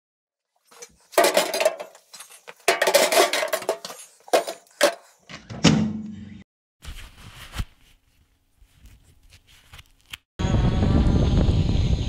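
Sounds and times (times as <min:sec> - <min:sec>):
metal objects clattering: 0:00.7 - 0:05.9.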